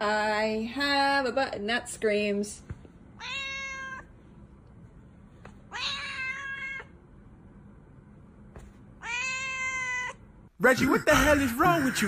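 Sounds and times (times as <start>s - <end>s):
cat meowing: 3.2s - 4.1s, 5.7s - 7.0s, 9.0s - 10.2s.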